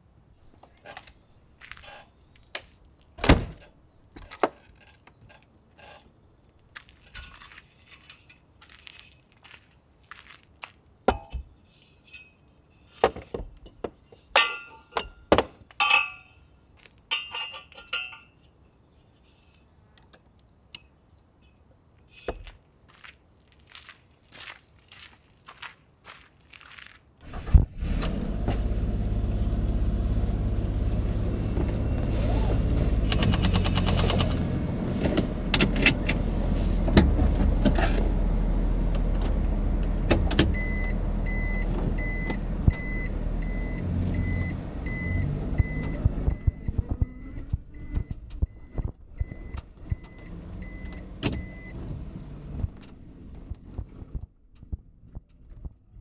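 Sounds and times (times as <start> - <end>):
small truck engine running: 27.3 - 48.0
electronic warning beep: 40.6 - 51.8.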